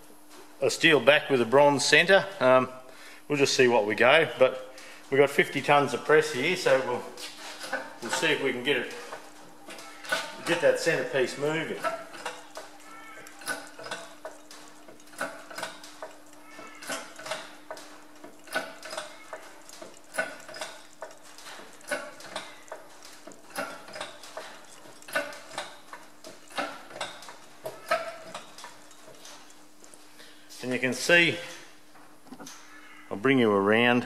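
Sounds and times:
hydraulic press pump clanking: 5.5 - 32.6.

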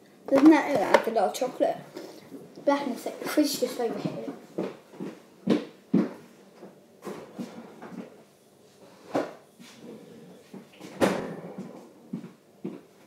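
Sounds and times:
kitchen doors banging shut: 10.9 - 11.7.

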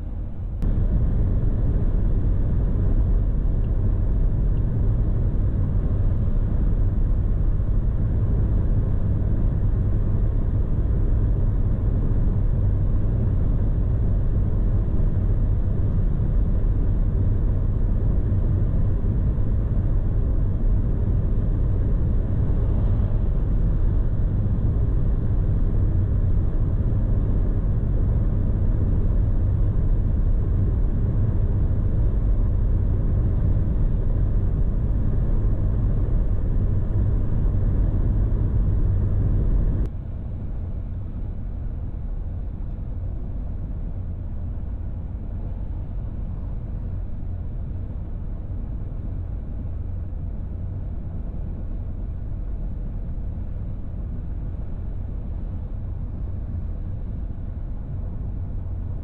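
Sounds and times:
car cabin rumble: 0.5 - 6.6, 20.8 - 39.9.

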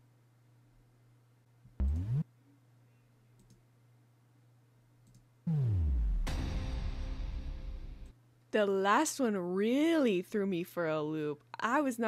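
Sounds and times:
electronic downward pitch sweeps: 1.8 - 2.3, 5.5 - 6.4.

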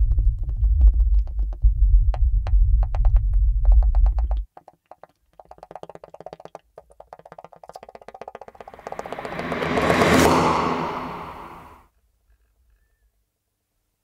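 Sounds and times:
rapid stuttering clicks: 3.7 - 9.5.

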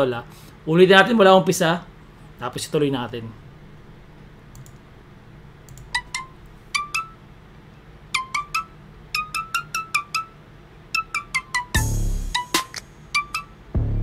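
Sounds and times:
high plinking melody: 6.0 - 7.2, 8.1 - 13.6.

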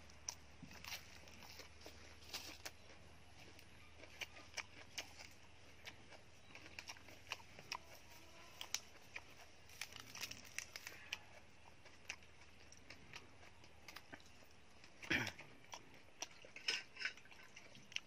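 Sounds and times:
lettuce crackling and tearing: 0.7 - 14.6.

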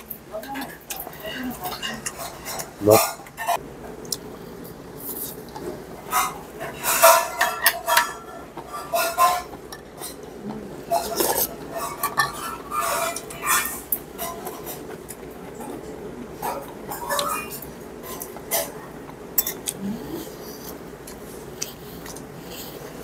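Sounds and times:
cutlery clinking on metal bowls: 0.0 - 3.6, 5.2 - 18.8, 19.4 - 19.8.

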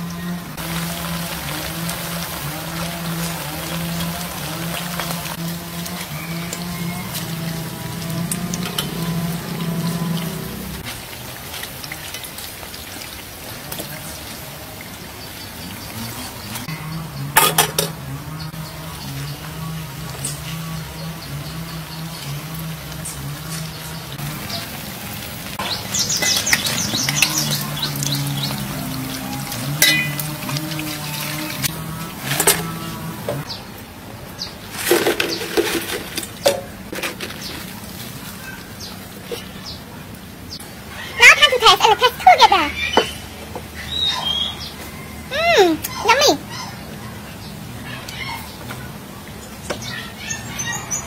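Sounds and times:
oil sizzling in a wok: 0.6 - 17.8, 18.8 - 33.4
birds chirping: 13.9 - 51.0
spatula clinking on wire strainer: 29.8 - 30.4.

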